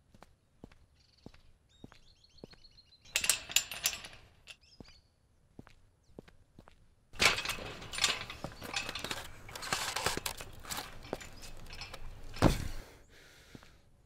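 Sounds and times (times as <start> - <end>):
chain-link fence rattling: 3.1 - 4.6, 7.2 - 12.8.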